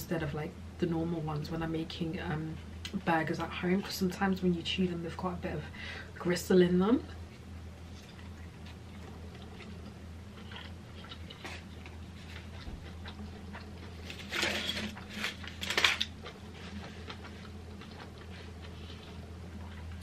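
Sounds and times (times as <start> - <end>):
low hum: 0.0 - 20.0
person chewing: 7.9 - 20.0
foil wrapper crinkling: 13.9 - 17.2.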